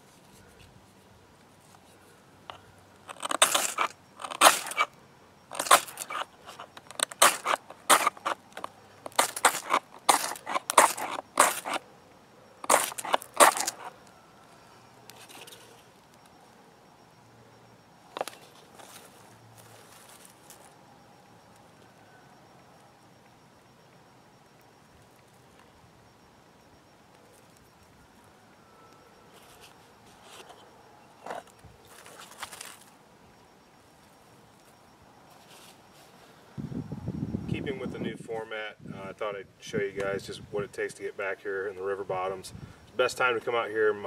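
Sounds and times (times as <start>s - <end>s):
knife shaving dry wood: 3.1s - 4.9s, 5.5s - 11.8s, 12.6s - 14.0s.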